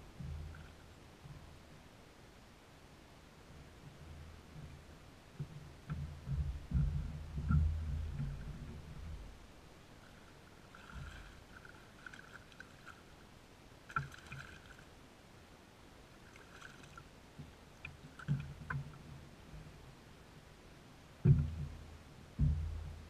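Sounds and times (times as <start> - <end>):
clicks and knocks on boat: 5.4 - 9.4, 16.6 - 19.8, 21.2 - 23.0
heavy low thump: 6.0 - 9.4, 21.2 - 23.0
fish splashing at the surface: 13.9 - 14.9, 16.2 - 17.1.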